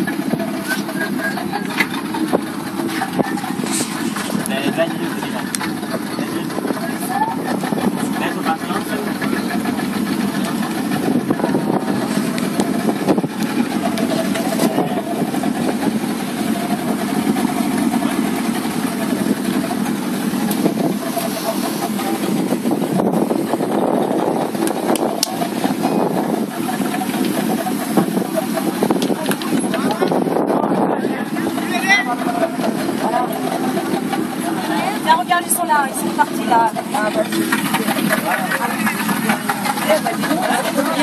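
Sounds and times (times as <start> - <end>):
motorboat engine running: 0.0 - 41.0.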